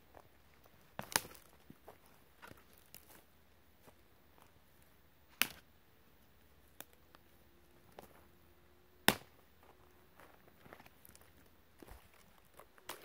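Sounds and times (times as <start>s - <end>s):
dry twigs snapping: 1.0s - 1.5s.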